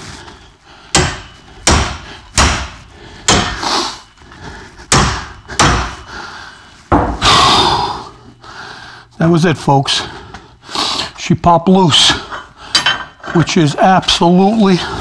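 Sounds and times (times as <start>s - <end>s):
sledgehammer striking metal: 0.9s - 3.7s, 4.9s - 6.2s.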